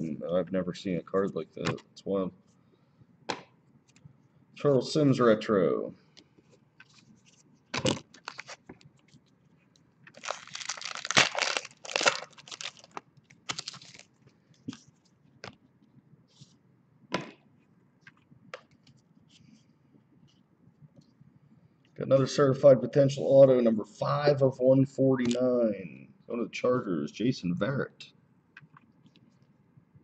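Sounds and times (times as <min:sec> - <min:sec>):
foil wrapper crinkling and tearing: 0:07.8 - 0:08.7, 0:10.1 - 0:14.2.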